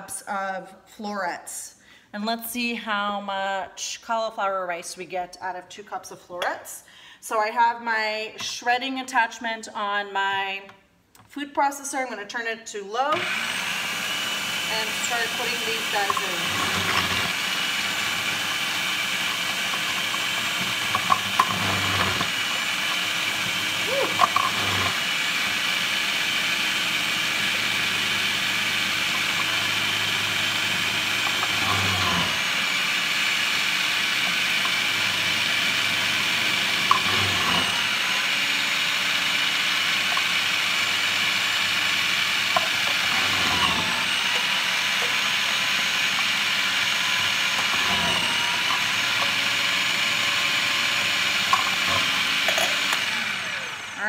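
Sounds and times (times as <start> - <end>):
food processor whirring: 13.1 - 54.0.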